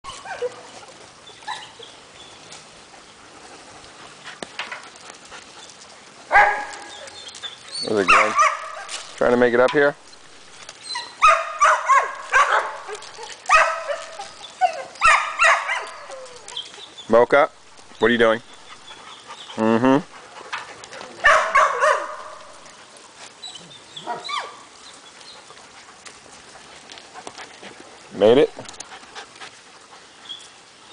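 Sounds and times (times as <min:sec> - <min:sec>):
dogs yipping and whining: 0:00.0 - 0:02.5, 0:04.4 - 0:09.2, 0:10.0 - 0:17.1, 0:17.8 - 0:26.8.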